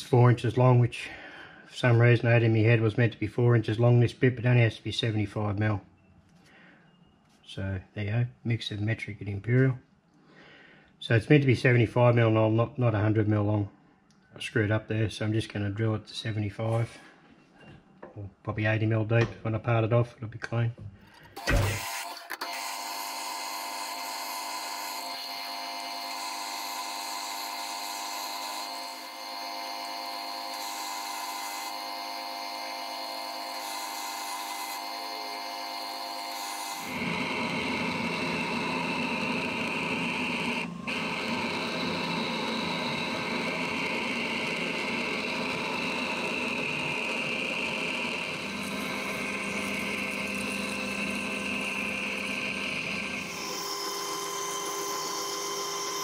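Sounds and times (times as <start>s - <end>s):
drill cutting metal: 21.4s - 56.0s
metal lathe whining: 21.4s - 56.0s.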